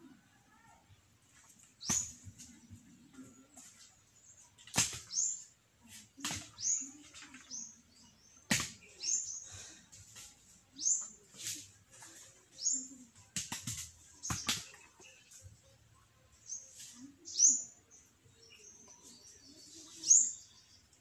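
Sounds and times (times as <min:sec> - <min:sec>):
bird chirping: 0:01.8 - 0:05.6, 0:06.3 - 0:09.6, 0:14.0 - 0:21.0
coconuts knocking: 0:08.5 - 0:08.8.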